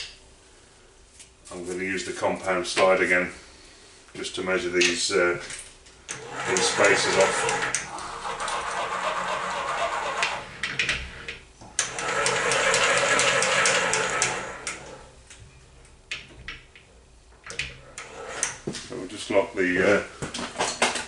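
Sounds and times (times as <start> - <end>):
lathe handwheel mechanical whirring: 6.1 - 15.2, 17.6 - 18.8.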